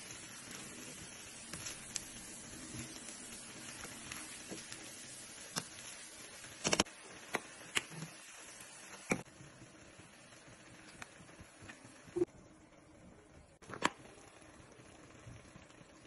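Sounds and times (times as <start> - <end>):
stir-fry sizzling in a pan: 0.0 - 16.0.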